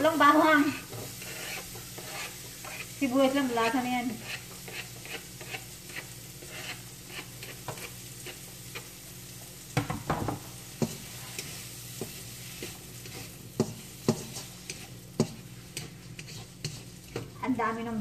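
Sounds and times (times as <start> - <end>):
spatula scraping and tapping pan: 0.0 - 17.6
onion sizzling in butter: 0.0 - 18.0.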